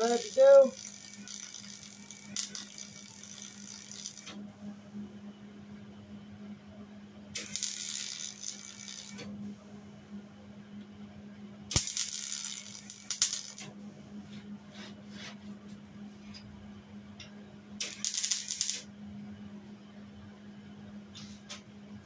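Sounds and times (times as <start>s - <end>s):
welder crackling and sizzling: 0.0s - 4.4s, 7.4s - 9.3s, 11.7s - 13.7s, 17.8s - 18.8s
steady low hum: 0.0s - 22.0s.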